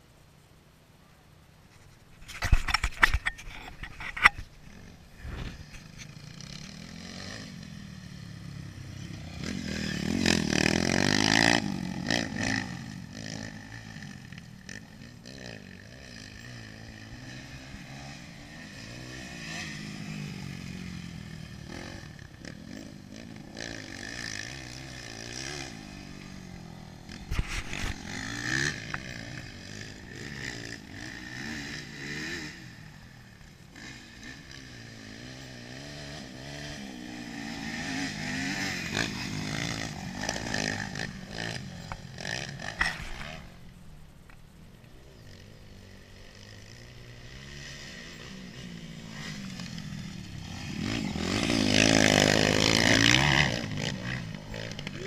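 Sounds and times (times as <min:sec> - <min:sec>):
dirt bike engine revving: 0:02.6 - 0:44.0, 0:44.6 - 0:55.0.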